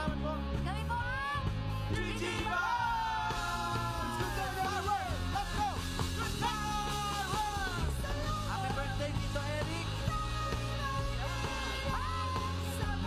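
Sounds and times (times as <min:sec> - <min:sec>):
woman singing: 0:00.0 - 0:02.5, 0:09.8 - 0:13.0
band playing pop-rock: 0:00.0 - 0:13.0
steady bass line: 0:00.0 - 0:13.0.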